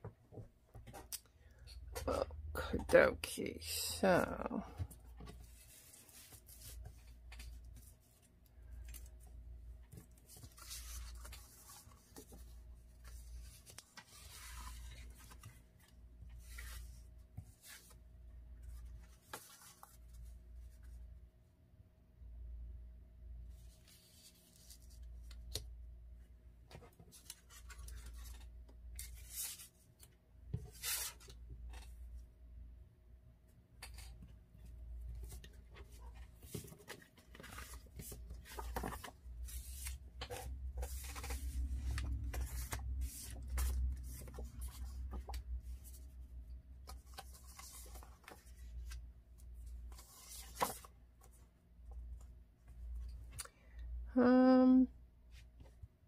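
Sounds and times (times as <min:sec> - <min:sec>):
paper rustling and sliding: 0:10.0 - 0:18.0, 0:35.2 - 0:46.1, 0:49.9 - 0:50.9.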